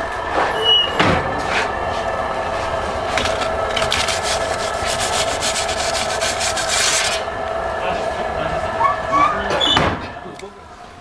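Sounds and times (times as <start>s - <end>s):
steady hum: 0.0s - 11.0s
metal peel scraping oven floor: 3.1s - 7.3s.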